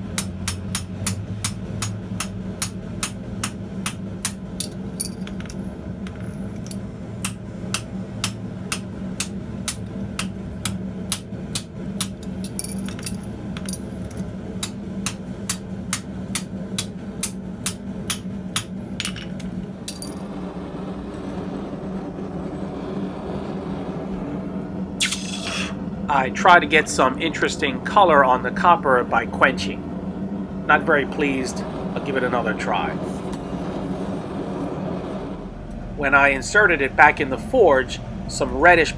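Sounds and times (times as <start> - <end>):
steady low hum: 0.0 - 38.9
hammer striking copper on anvil: 0.1 - 13.9, 14.6 - 20.2.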